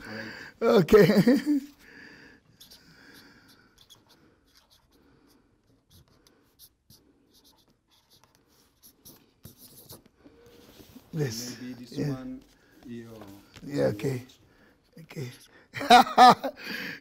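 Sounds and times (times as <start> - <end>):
marker pen scratching on cardboard: 2.4 - 15.6.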